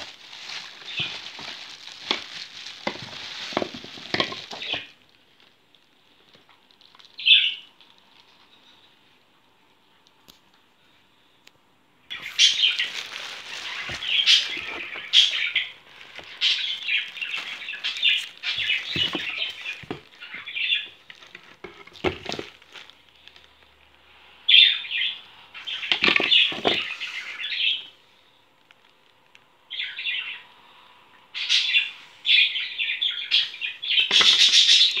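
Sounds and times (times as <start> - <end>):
plastic packaging crinkling: 0.0 - 8.5, 12.1 - 23.7, 25.7 - 27.2, 34.0 - 35.0.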